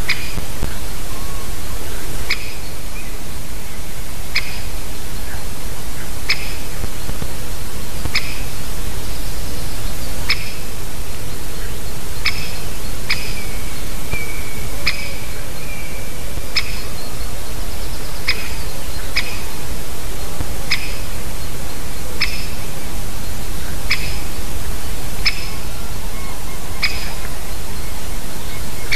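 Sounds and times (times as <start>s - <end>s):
woodpecker calls: 0.0s - 3.2s, 4.3s - 6.8s, 8.1s - 28.9s
steady low rumble: 0.0s - 28.9s.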